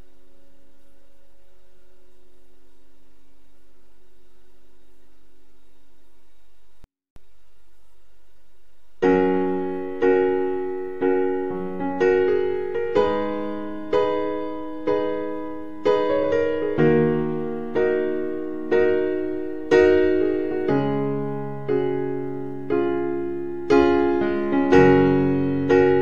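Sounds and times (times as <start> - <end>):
slow piano chords: 9.0 - 26.0.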